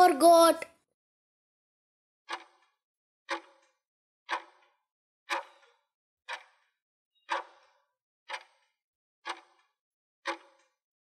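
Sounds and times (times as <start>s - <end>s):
clock ticks: 2.3s - 2.6s, 3.3s - 3.7s, 4.3s - 4.7s, 5.3s - 5.7s, 6.3s - 6.7s, 7.3s - 8.7s, 9.3s - 9.6s, 10.2s - 10.7s.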